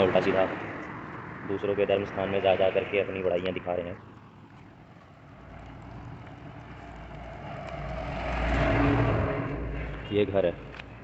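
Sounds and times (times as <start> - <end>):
truck driving past: 5.2 - 10.6.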